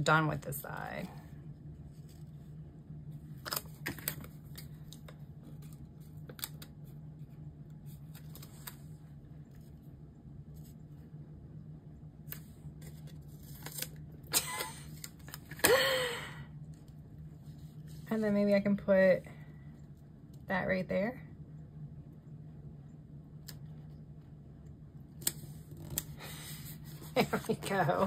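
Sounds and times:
steady low hum: 0.0 - 28.0
paper rustle: 7.8 - 9.8, 12.3 - 14.0.

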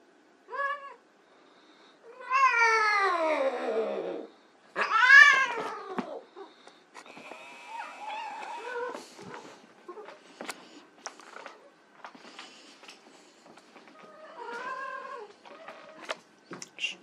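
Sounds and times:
cat meowing: 2.1 - 6.2.

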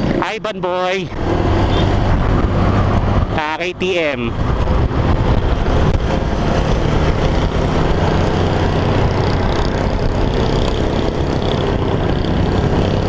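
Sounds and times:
wind and road noise: 0.0 - 13.0
motorcycle engine running: 4.3 - 13.0.

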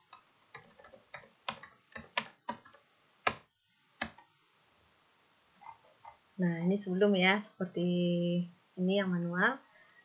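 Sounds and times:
mouse and keyboard clicks: 0.1 - 4.3.

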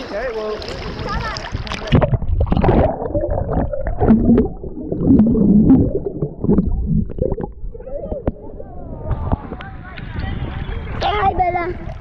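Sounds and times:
muffled underwater water gurgling: 0.6 - 10.0.

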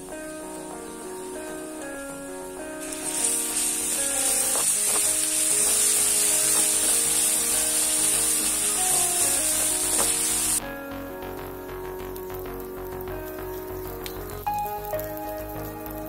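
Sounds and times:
paste sizzling in hot oil: 2.8 - 10.6.

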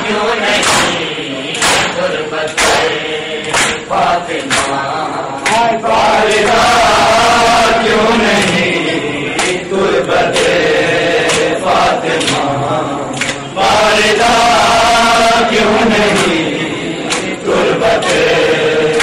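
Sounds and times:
men chanting in unison: 0.0 - 19.0.

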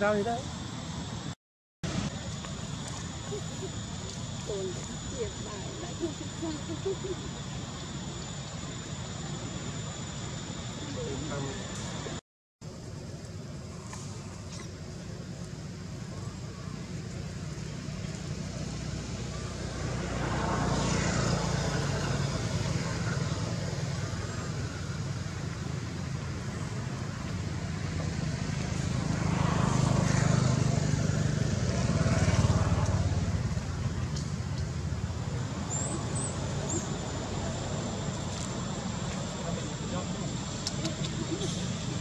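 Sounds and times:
passing motor vehicles rumble: 13.6 - 42.0.

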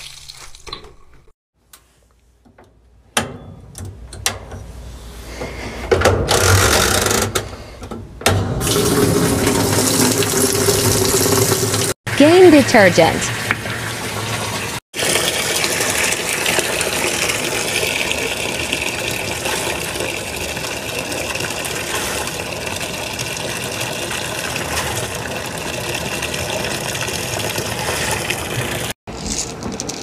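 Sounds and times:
water gushing into washing machine drum: 8.6 - 29.0.

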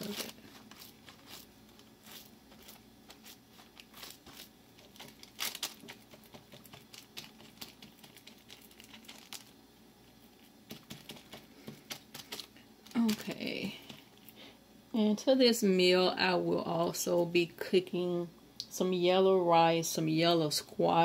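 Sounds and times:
wax paper crinkling: 0.0 - 14.4.

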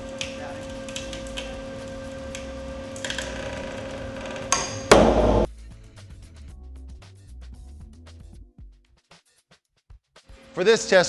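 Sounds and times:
test rig hum: 0.0 - 5.5
sharp bang and crash: 4.9 - 5.5.

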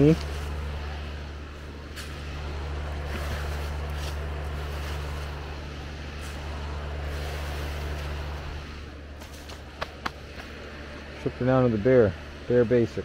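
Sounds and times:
motor humming: 0.0 - 13.0.

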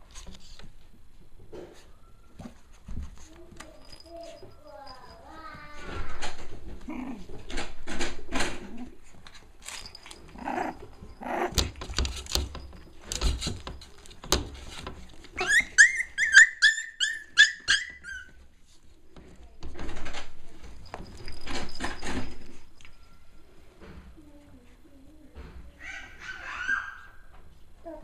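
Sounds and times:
rustling: 0.0 - 16.3
puppies scuffling: 0.0 - 23.1
high squeaks: 15.4 - 18.4.

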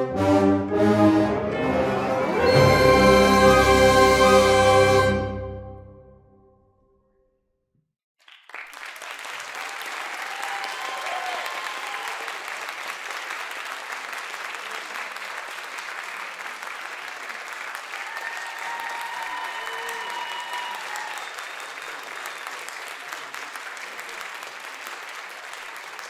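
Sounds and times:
audience applauding: 8.2 - 26.0.

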